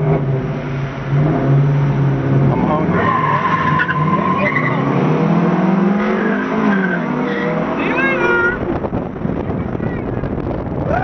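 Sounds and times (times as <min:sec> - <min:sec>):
car engines accelerating: 0:00.0 - 0:11.0
tire squeals: 0:02.9 - 0:05.0, 0:06.0 - 0:08.6.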